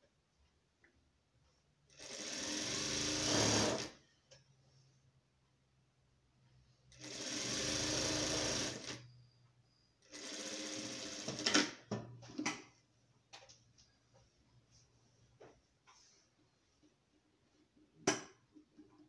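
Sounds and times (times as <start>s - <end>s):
sewing machine stitching: 1.9s - 4.0s, 6.9s - 9.1s, 10.0s - 11.8s.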